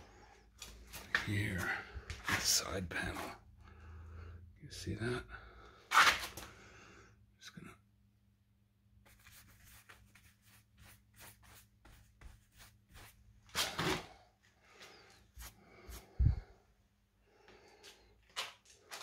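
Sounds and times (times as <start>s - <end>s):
paintbrush scratching on wall: 9.0s - 13.6s, 15.3s - 16.4s.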